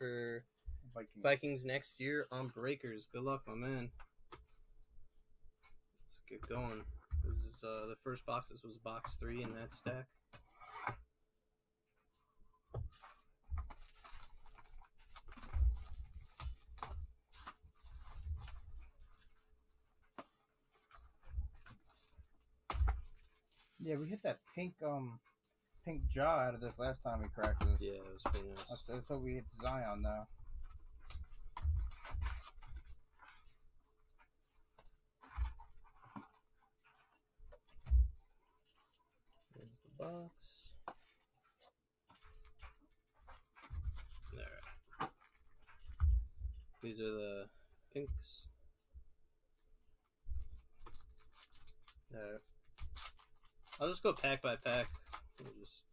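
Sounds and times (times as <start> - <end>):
plastic shrink-wrap crinkling: 12.9 - 24.8, 50.3 - 55.9.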